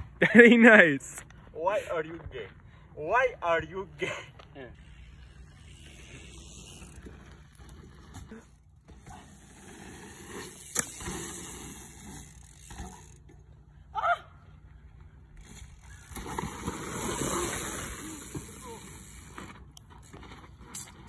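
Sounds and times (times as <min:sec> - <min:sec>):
bike tyres rumbling on dirt: 0:04.8 - 0:13.6, 0:14.6 - 0:21.0.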